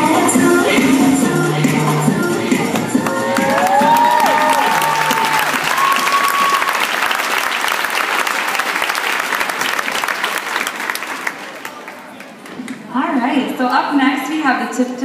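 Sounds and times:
crowd clapping: 0:02.7 - 0:12.6.

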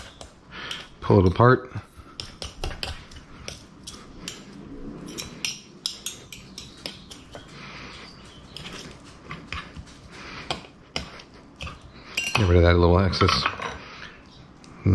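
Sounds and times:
forks clicking on wooden board: 0:02.2 - 0:07.6.

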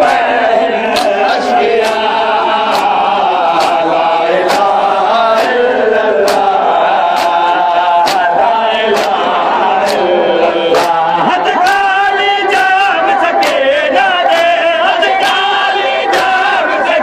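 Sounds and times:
crowd of men chanting: 0:00.0 - 0:17.0
hands slapping chests: 0:00.9 - 0:05.6, 0:06.2 - 0:10.1, 0:10.7 - 0:11.8, 0:13.4 - 0:13.6, 0:14.2 - 0:14.6, 0:16.1 - 0:16.4.

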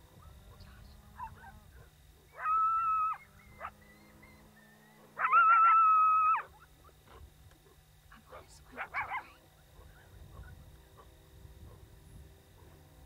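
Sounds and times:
coyote-style howls: 0:00.1 - 0:07.0.

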